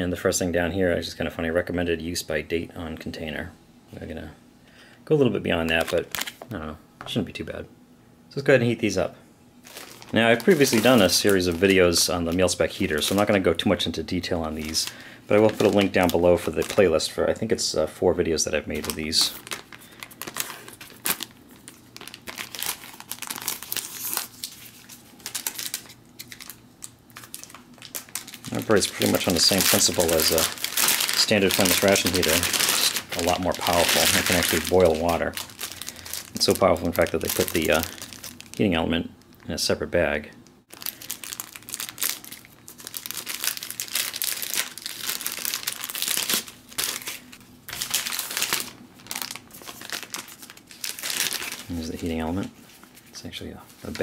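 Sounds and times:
packaging crinkling: 5.6s - 6.5s, 9.6s - 17.5s, 18.6s - 39.6s, 40.7s - 54.0s.

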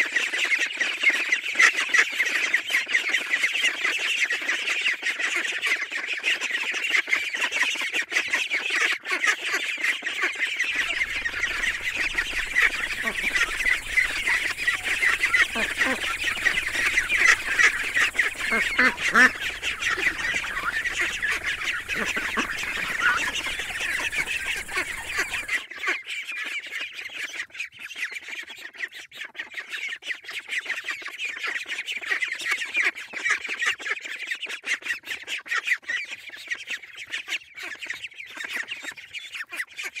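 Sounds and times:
ducklings peeping: 10.6s - 25.6s
low background rumble: 10.8s - 25.5s.

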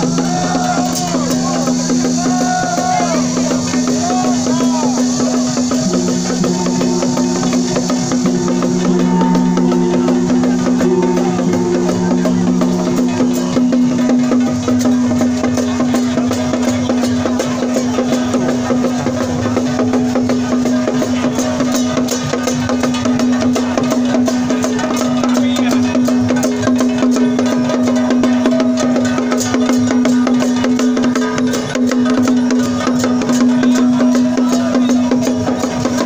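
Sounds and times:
drums and wood-block percussion: 0.0s - 36.0s
held wind instrument note: 0.8s - 14.8s.

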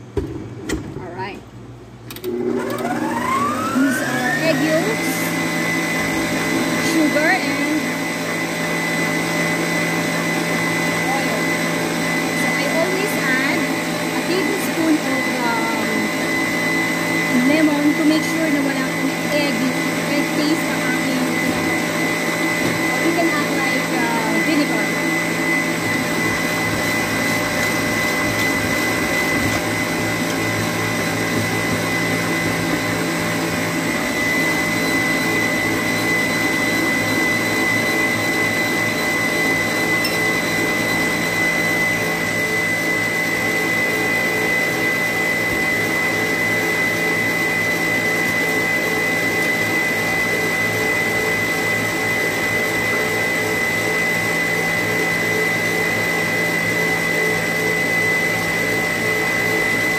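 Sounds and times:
stand mixer whining: 2.1s - 59.9s
beater whipping in metal bowl: 12.1s - 39.2s.

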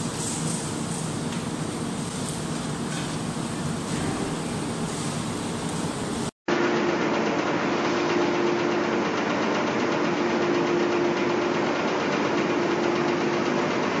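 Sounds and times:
machine running with hum: 0.0s - 14.0s.

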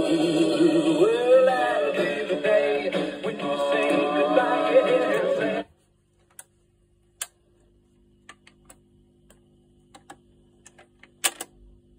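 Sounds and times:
record player music: 0.0s - 6.5s
low steady hum: 0.0s - 11.9s.

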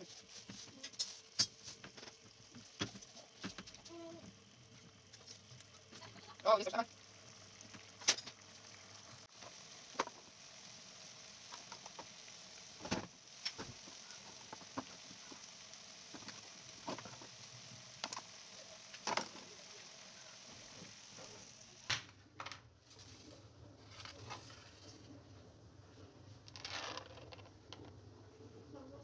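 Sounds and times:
sauce simmering with faint sizzle: 0.0s - 21.9s.

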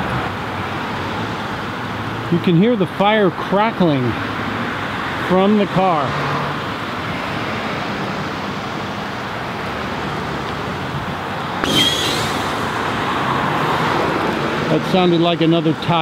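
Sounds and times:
road traffic passing: 0.0s - 16.0s
sudden pop: 11.6s - 12.7s.

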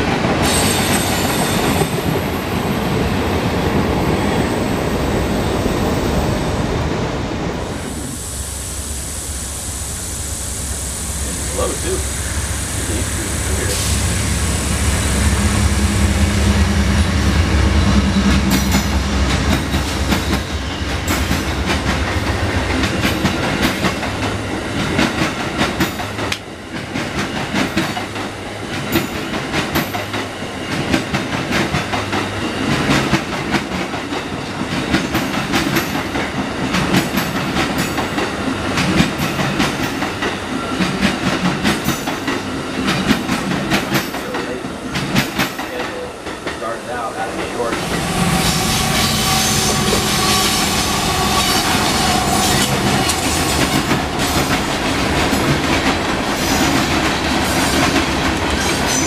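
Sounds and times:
locomotive engine rumble: 7.8s - 24.4s, 45.8s - 58.5s
train wheels clicking over rail joints: 18.0s - 59.0s.

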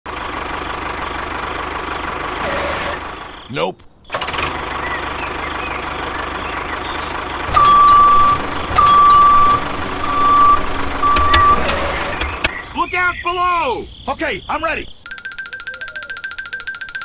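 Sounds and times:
vehicle engine running: 0.1s - 3.5s, 4.1s - 12.6s
reversing alarm beeps: 7.6s - 11.6s.

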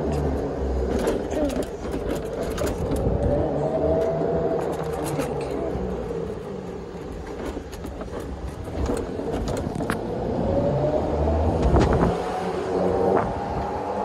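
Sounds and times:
rattling clicks: 0.0s - 10.1s
golf cart drivetrain whine: 0.0s - 14.0s
low engine rumble: 0.0s - 14.0s.

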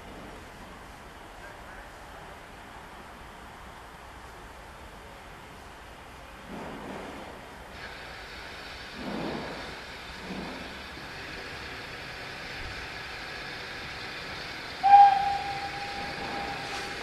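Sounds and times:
hiss of escaping steam: 6.5s - 17.0s
steam locomotive whistle: 14.8s - 17.0s.

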